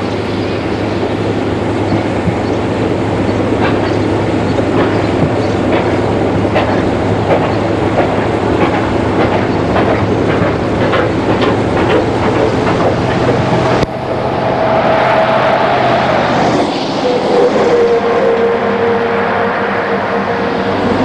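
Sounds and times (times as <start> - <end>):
steam locomotive: 0.0 - 21.0
wheels clattering over track: 1.9 - 13.9
steady tone: 13.4 - 21.0.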